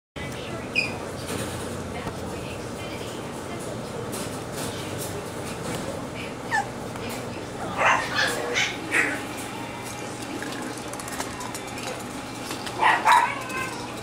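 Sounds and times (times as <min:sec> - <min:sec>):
puppies yipping and barking: 0:06.5 - 0:06.8, 0:07.7 - 0:09.5, 0:11.3 - 0:14.0.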